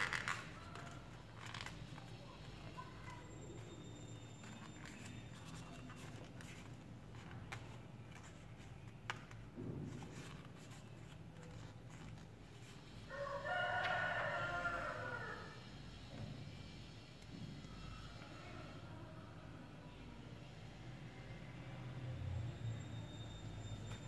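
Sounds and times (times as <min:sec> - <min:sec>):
paper bill rustling and clicking: 0:00.0 - 0:03.0, 0:04.4 - 0:12.7.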